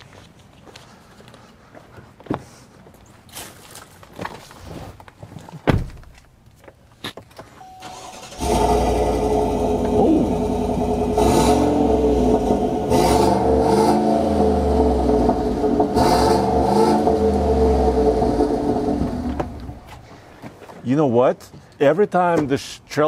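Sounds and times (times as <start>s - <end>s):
engine starting and idling: 7.6s - 20.0s.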